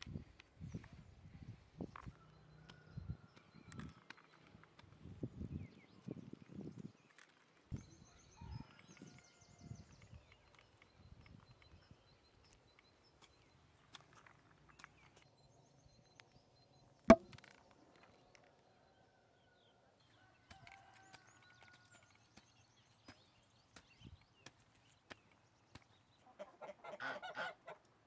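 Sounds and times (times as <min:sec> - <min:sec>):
taps of hand planting in soil: 0:17.1 - 0:17.5, 0:20.4 - 0:26.2.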